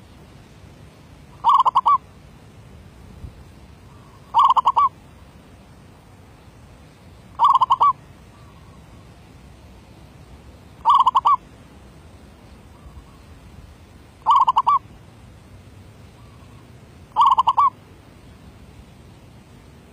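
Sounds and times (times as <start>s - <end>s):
dove cooing: 1.4s - 2.0s, 3.9s - 4.9s, 7.4s - 8.8s, 10.8s - 11.4s, 14.2s - 14.8s, 16.2s - 17.8s.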